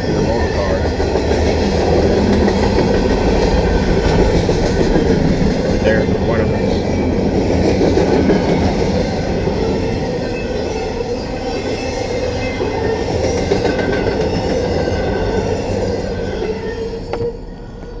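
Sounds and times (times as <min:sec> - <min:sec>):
freight train wheels rumbling on rail: 0:00.0 - 0:18.0
high wheel squeal: 0:08.8 - 0:13.6.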